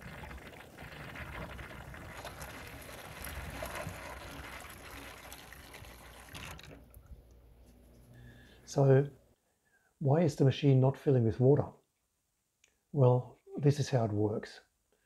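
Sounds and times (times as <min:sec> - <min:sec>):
dishwasher gurgling: 0:00.0 - 0:06.9.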